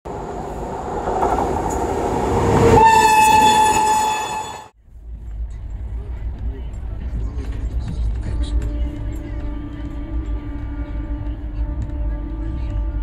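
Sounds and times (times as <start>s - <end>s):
train rumbling on rails: 0.1s - 13.0s
locomotive air horn blast: 2.5s - 4.7s, 8.4s - 13.0s.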